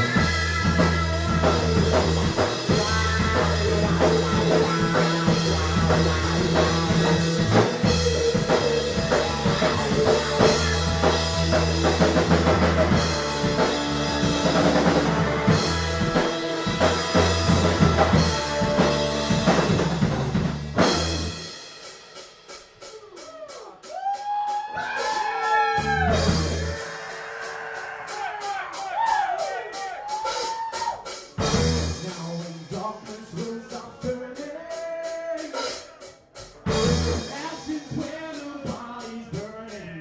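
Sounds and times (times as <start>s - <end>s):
bending guitar notes: 0.0s - 21.4s
live rock band playing: 0.0s - 40.0s.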